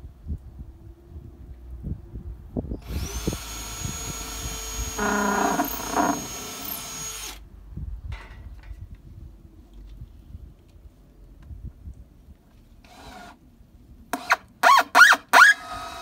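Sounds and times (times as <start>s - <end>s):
power drill driving screw into wood: 2.8s - 7.4s, 12.8s - 13.4s, 14.1s - 16.0s.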